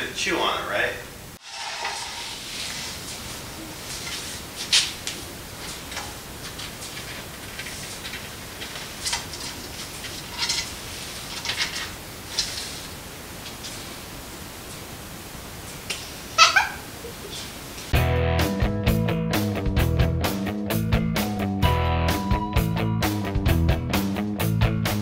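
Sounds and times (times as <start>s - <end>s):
rabbit claws scratching on wood: 1.8s - 13.8s.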